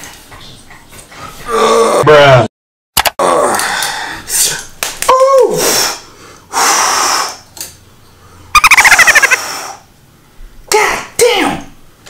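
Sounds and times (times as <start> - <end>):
man moaning: 1.5 - 2.3
man hissing breath: 5.6 - 7.4.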